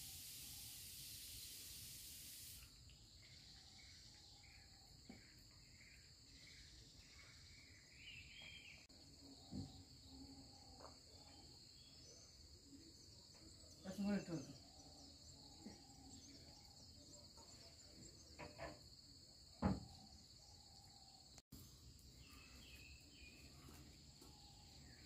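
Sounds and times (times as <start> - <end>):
hiss: 0.0 - 2.8
crickets droning: 0.0 - 25.0.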